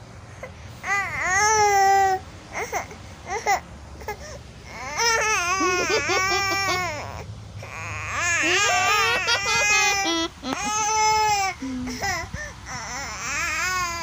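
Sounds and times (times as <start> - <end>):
baby wailing: 4.7 - 11.6
baby babbling and crying: 4.7 - 14.0.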